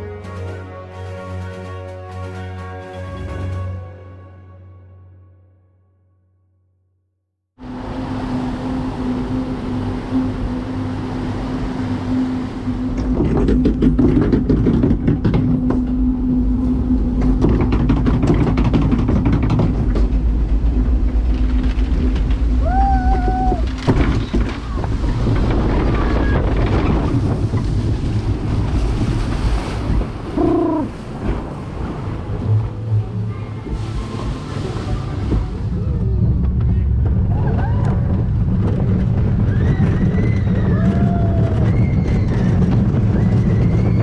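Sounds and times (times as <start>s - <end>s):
wind: 0.0s - 4.7s, 7.6s - 44.0s
rushing water: 20.3s - 39.5s.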